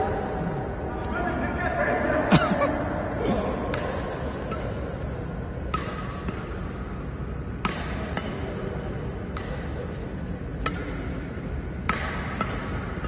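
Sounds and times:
rackets striking shuttlecock: 0:03.7 - 0:13.0.

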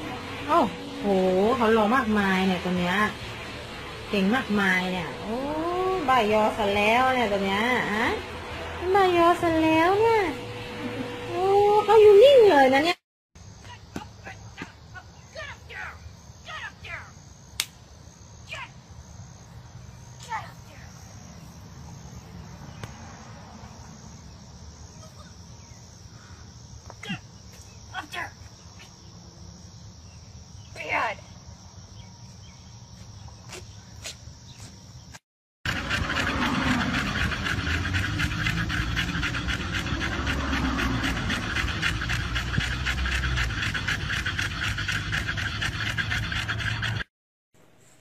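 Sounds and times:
low rumble: 0:00.0 - 0:12.5
crickets chirping: 0:00.0 - 0:47.0
sharp click: 0:17.6 - 0:17.8
dogs panting: 0:35.6 - 0:47.1.

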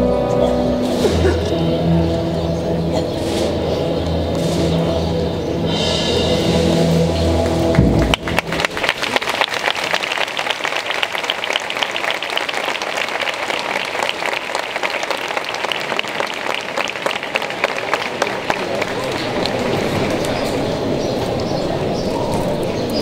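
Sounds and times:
crowd applauding: 0:07.4 - 0:20.8.

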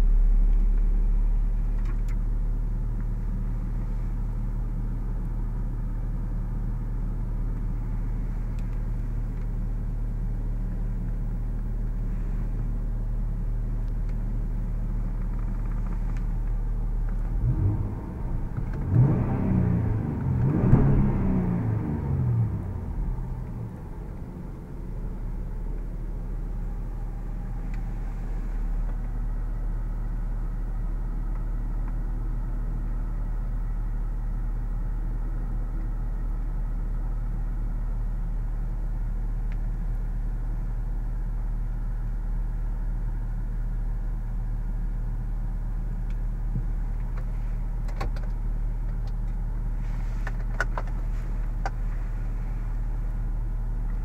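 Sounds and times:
car engine idling: 0:00.0 - 0:54.0.

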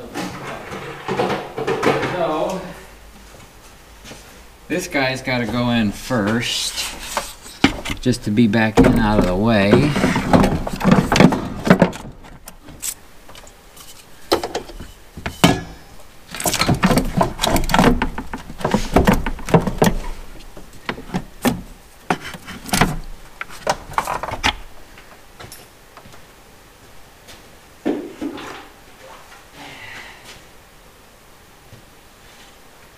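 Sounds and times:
hands handling plastic and metal parts: 0:06.2 - 0:24.8.

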